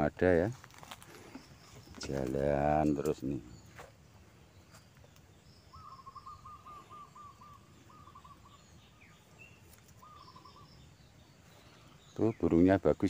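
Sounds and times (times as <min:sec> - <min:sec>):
high bird chirps: 0:01.3 - 0:12.8
bird hooting: 0:05.7 - 0:09.2, 0:10.0 - 0:10.9.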